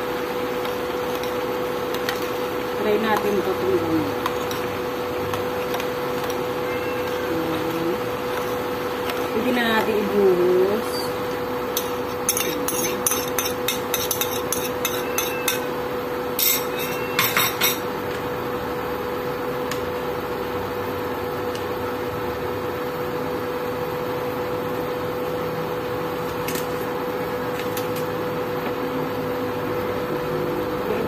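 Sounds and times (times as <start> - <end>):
induction cooktop hum: 0.0 - 31.0
spoon scraping ceramic bowl: 11.8 - 15.7.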